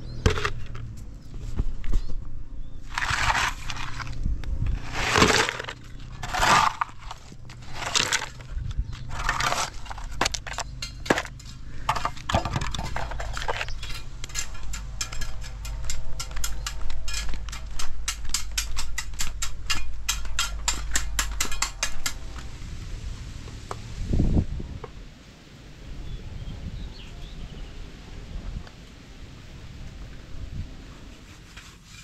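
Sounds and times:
shovel scraping stones: 0.1s - 0.8s, 2.8s - 22.2s.

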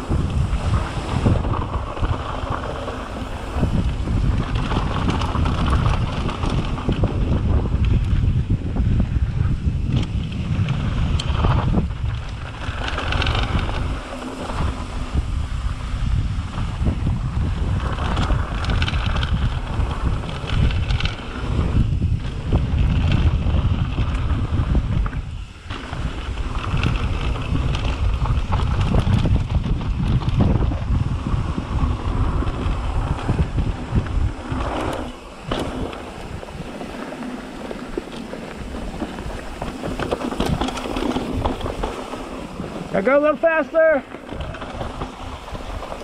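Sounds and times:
bike rattling over bumps: 0.0s - 46.0s
wind buffeting microphone: 0.0s - 46.0s
tyres crunching over dirt: 25.7s - 46.0s.

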